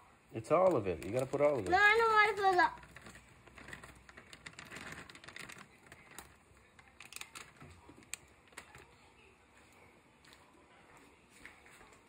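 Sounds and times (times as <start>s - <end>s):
vegetables pouring into a pan: 0.8s - 7.6s.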